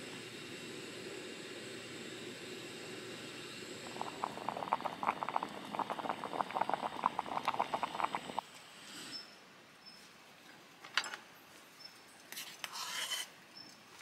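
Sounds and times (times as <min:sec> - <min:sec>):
water boiling in a pot: 0:00.0 - 0:08.4.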